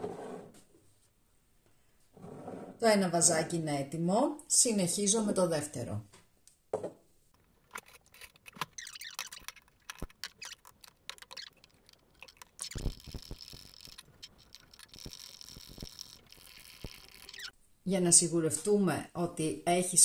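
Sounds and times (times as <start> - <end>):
soft steady hiss: 11.8 - 19.8.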